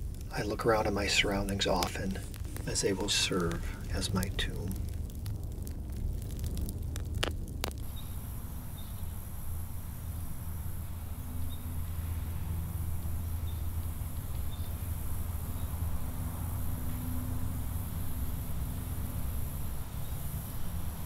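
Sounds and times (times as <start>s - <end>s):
low rumble: 0.0s - 21.0s
high insect drone: 7.8s - 21.0s.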